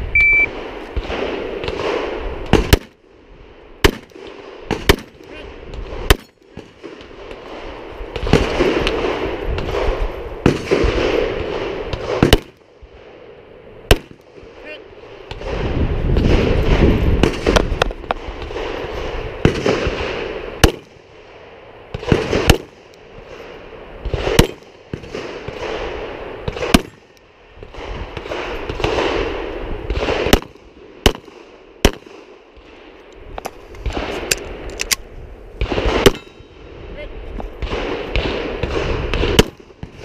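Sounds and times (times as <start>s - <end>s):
steady rushing noise: 0.0s - 40.0s
pistol shots: 0.2s - 3.0s, 3.8s - 12.6s, 13.9s - 14.4s, 15.2s - 21.0s, 21.9s - 32.7s, 35.6s - 36.5s, 37.6s - 40.0s.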